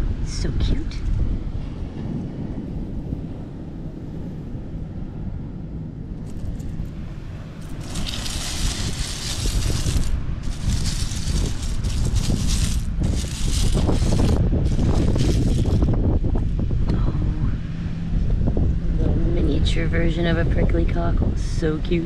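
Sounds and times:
wind buffeting microphone: 0.0s - 22.0s
seashells rattling and scraping: 6.2s - 7.0s, 7.6s - 16.0s.

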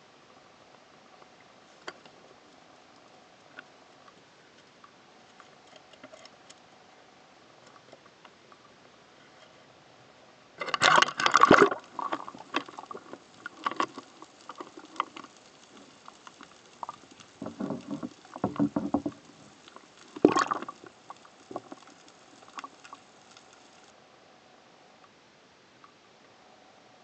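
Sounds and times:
small clicks: 10.6s - 23.9s
muffled underwater sloshing: 10.7s - 23.9s
underwater knocking: 16.8s - 19.4s.

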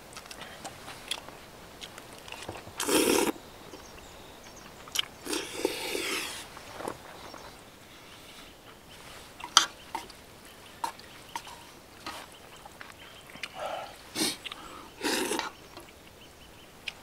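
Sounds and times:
chewing: 0.0s - 3.9s, 4.6s - 7.2s, 8.2s - 16.1s
slurping noodles: 2.4s - 3.4s, 5.2s - 6.5s, 13.4s - 15.6s.

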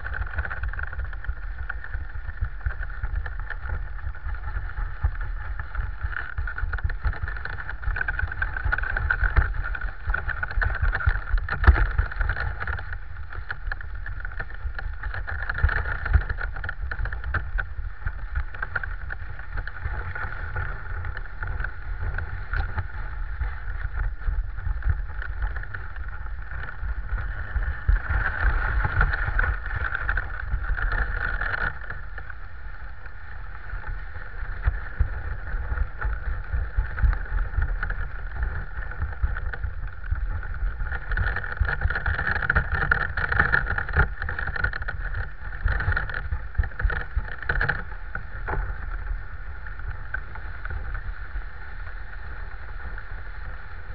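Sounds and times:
sled knocks and rattles: 0.0s - 53.9s.

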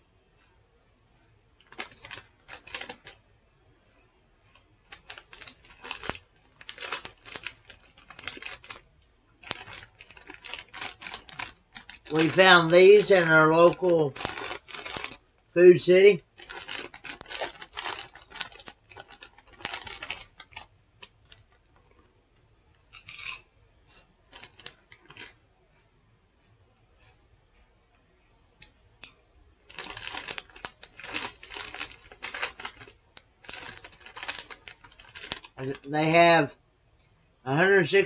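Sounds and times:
plastic chip bag crinkling: 1.6s - 3.2s, 4.5s - 22.0s, 24.3s - 25.4s, 29.6s - 36.4s.

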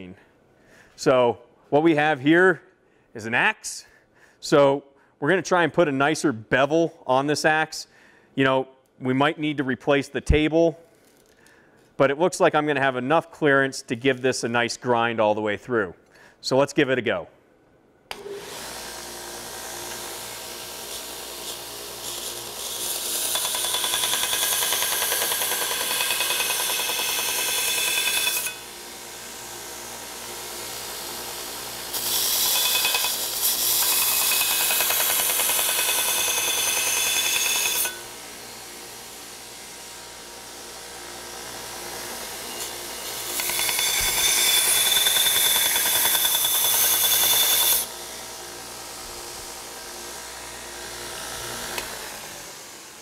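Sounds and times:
belt grinder motor running: 18.1s - 53.0s
steel grinding on abrasive belt: 18.7s - 28.7s, 30.7s - 38.1s, 41.8s - 48.0s.

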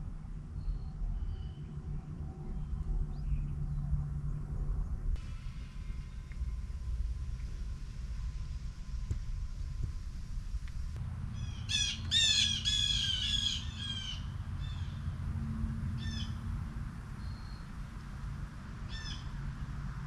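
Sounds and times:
low steady rumble: 0.0s - 20.0s
wild bird calling: 11.3s - 15.2s, 15.9s - 16.5s, 18.8s - 19.4s.

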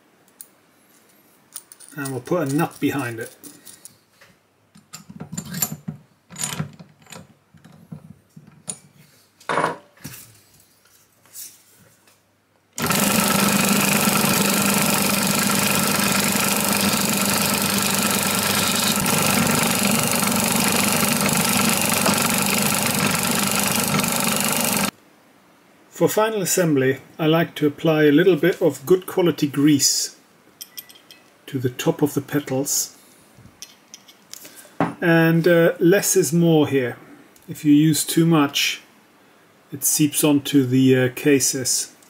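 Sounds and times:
drill press motor running: 12.8s - 24.9s.

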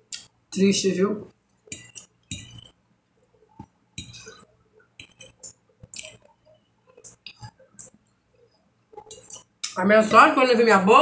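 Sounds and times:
soft chewing: 1.4s - 9.8s
fork scraping on glass plate: 4.0s - 6.3s.

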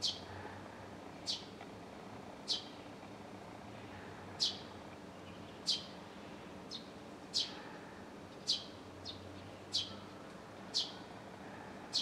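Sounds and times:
sparrow chirping: 4.4s - 4.6s, 8.4s - 10.0s.

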